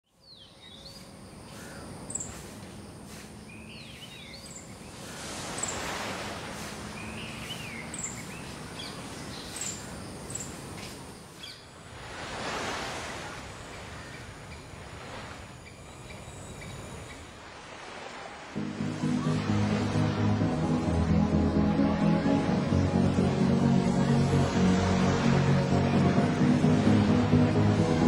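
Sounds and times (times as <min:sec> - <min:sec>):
small birds chirping: 0:00.1 - 0:11.8, 0:15.5 - 0:17.3
sea waves washing ashore: 0:01.0 - 0:28.0.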